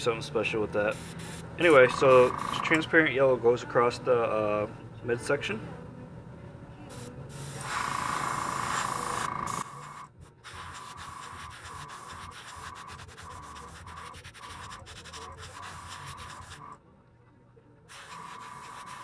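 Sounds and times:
airbrush hissing: 0.9s - 2.8s, 6.9s - 16.8s, 17.9s - 19.0s.

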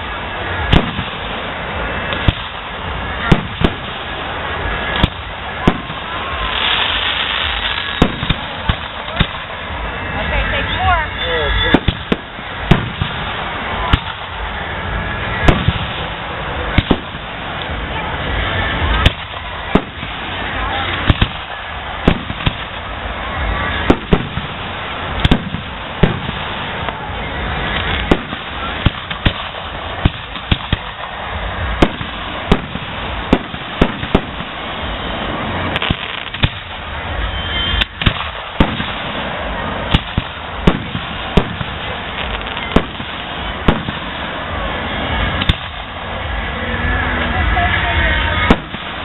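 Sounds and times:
continuous background din: 0.0s - 49.0s
fireworks bursting with sharp bangs: 0.0s - 49.0s.

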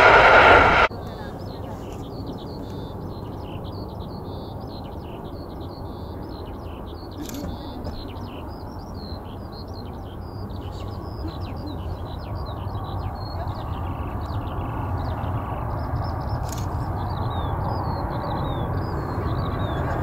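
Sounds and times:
low steady rumble: 0.0s - 0.9s
small birds chirping: 0.9s - 20.0s.

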